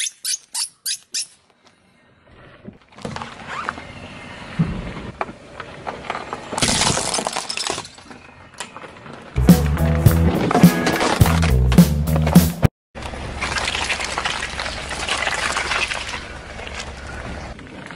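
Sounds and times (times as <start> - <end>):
tyre crushing plastic and wood: 5.8 - 12.4.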